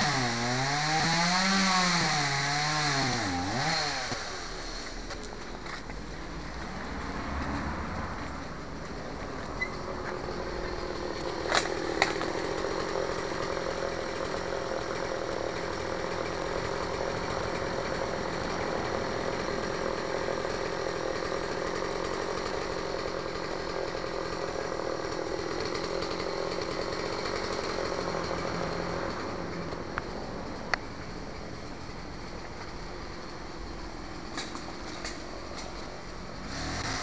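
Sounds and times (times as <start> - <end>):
chainsaw running: 0.0 - 5.4, 10.0 - 30.0, 33.0 - 37.0.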